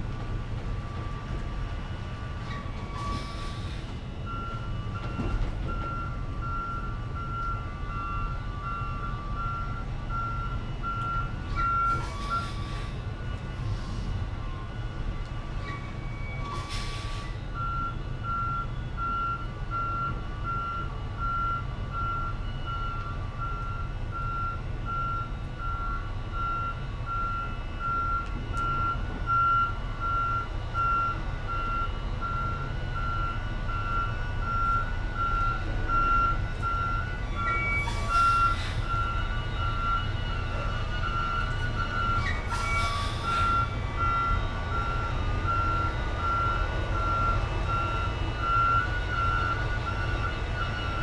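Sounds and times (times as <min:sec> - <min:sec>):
diesel engine rumble: 0:00.0 - 0:51.0
truck backup alarm beeping: 0:00.0 - 0:51.0
air brake hiss: 0:03.0 - 0:04.0, 0:11.9 - 0:14.2, 0:16.5 - 0:17.4, 0:37.8 - 0:39.0, 0:42.3 - 0:43.6.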